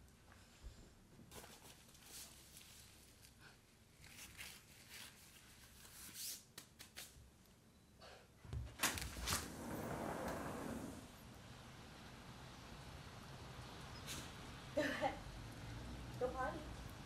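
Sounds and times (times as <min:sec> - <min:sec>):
fabric raincoat rustling: 0:08.8 - 0:11.2.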